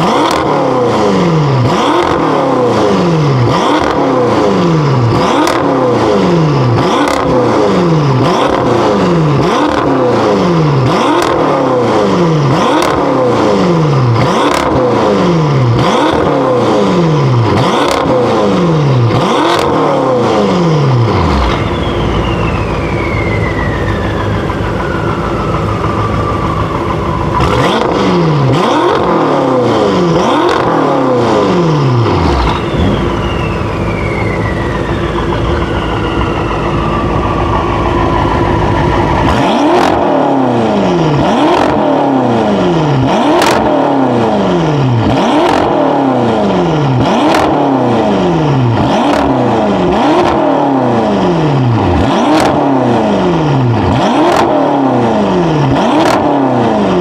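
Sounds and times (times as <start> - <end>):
car engine idling: 0.0 - 57.0
car engine revving: 0.0 - 57.0
high turbo whine: 0.0 - 57.0
exhaust cracks: 17.3 - 44.2.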